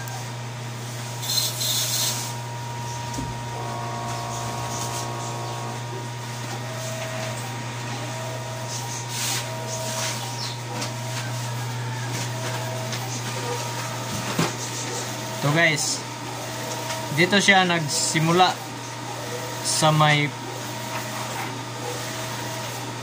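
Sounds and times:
steady low hum: 0.0 - 19.4
printer motors whining: 0.0 - 23.0
print-head carriage whine: 2.5 - 14.1.

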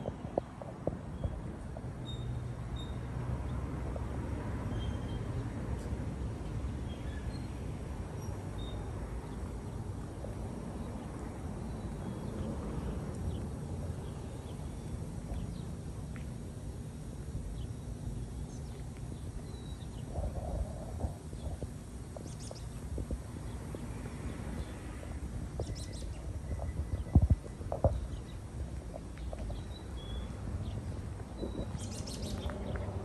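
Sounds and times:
low outdoor rumble: 5.3 - 33.0
footsteps on pavement: 15.2 - 16.5, 30.8 - 33.0
birds chirping: 17.5 - 23.9, 25.5 - 33.0.

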